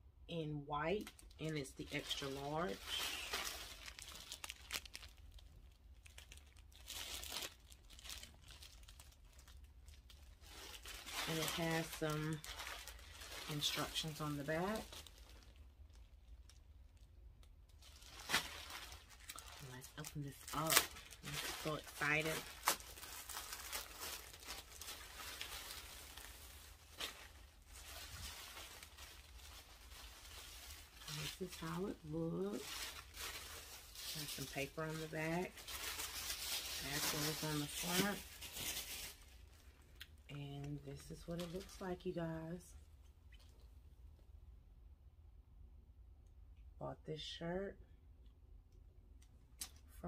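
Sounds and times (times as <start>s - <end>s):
plastic bag crinkling: 0.9s - 42.2s.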